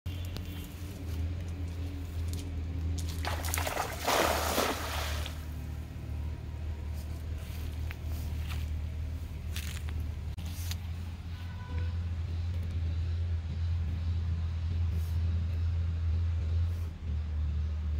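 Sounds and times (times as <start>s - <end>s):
steady low hum: 0.1s - 17.9s
cast net splashing on water: 3.0s - 5.7s
short splashes: 3.0s - 5.8s.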